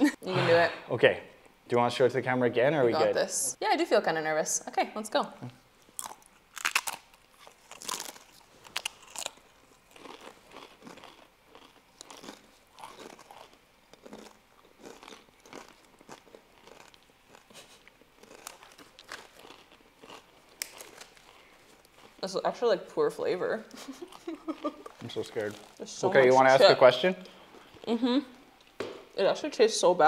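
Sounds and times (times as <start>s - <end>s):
chewing: 5.8s - 22.2s
chip crunching: 5.8s - 22.2s, 24.1s - 26.0s.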